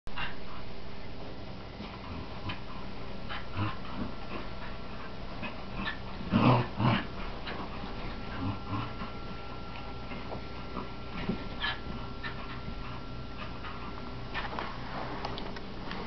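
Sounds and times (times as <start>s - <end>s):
dogs growling and whining: 1.8s - 14.5s.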